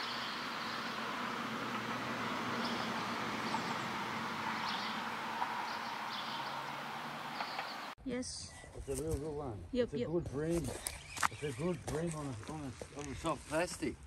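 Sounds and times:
high bird chirps: 0.0s - 8.0s.

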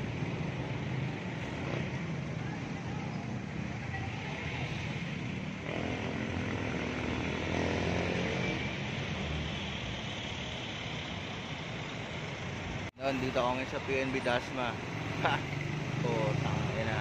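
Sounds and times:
road traffic engine and tyre noise: 0.0s - 17.0s
vehicle engine passing: 4.1s - 9.0s.

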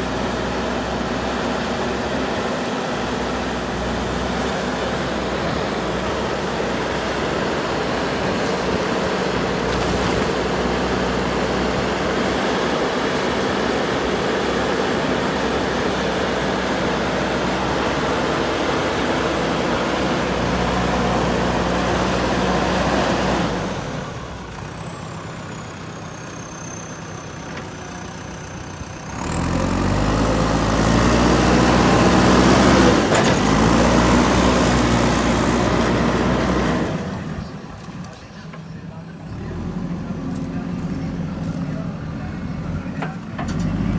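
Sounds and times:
diesel engine revving under load: 0.0s - 38.4s, 39.0s - 43.9s
bucket pushing soil: 9.4s - 10.6s.

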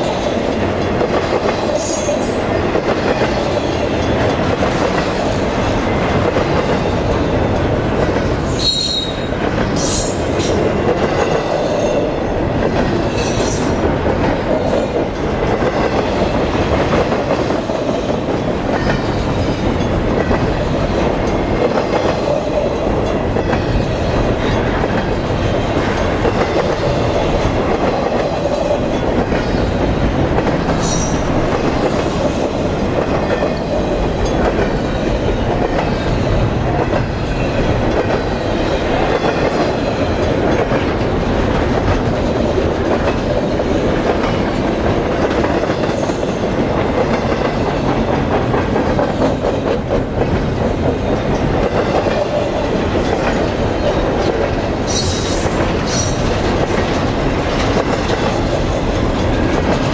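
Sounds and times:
freight train wheels rumbling on rails: 0.0s - 59.9s.

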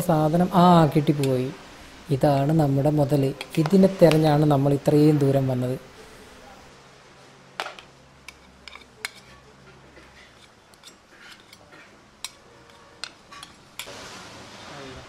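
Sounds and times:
metal spoon clinking on pot: 8.3s - 9.5s, 10.2s - 13.9s.

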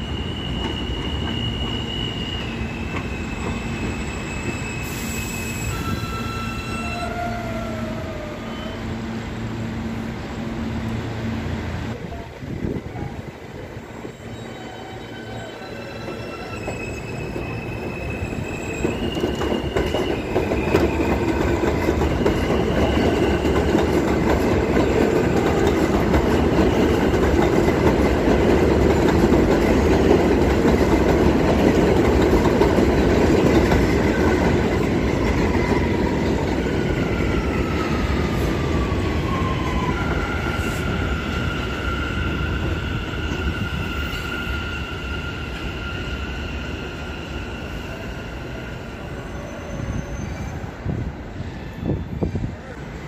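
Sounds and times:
high-pitched wheel squeal: 0.0s - 9.0s, 13.8s - 23.7s, 35.5s - 50.8s
subway train wheels clattering: 0.0s - 53.0s.

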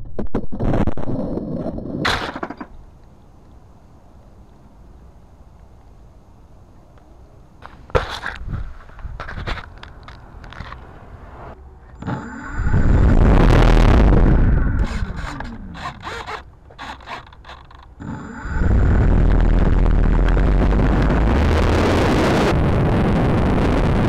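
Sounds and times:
heavy rumble on microphone: 0.0s - 2.1s, 8.2s - 17.1s, 17.9s - 24.0s
model plane motor and propeller: 12.0s - 21.3s.

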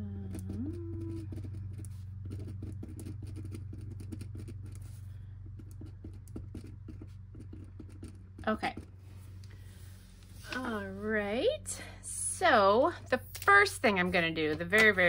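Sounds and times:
steady low hum: 0.0s - 15.0s
pen scratching on paper: 1.1s - 9.0s.

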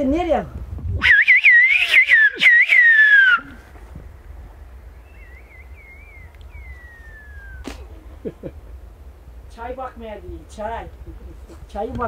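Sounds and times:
faint distant whistled phrase: 1.0s - 3.6s, 5.0s - 7.7s
man whistling loudly: 1.0s - 3.6s, 5.1s - 7.7s.

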